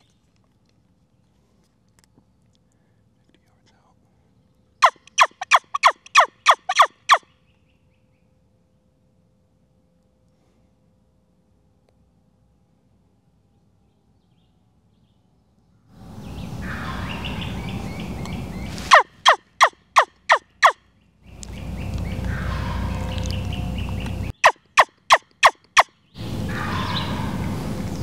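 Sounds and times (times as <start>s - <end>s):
turkey yelping: 4.8s - 7.2s, 18.8s - 20.8s, 21.4s - 27.6s.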